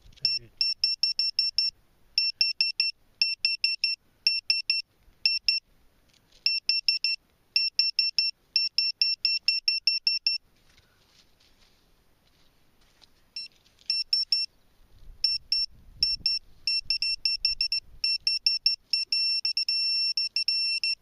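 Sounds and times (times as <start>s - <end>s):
pinpointer short high beeps: 0.1s - 5.6s, 6.4s - 10.4s, 13.4s - 14.5s, 15.2s - 21.0s.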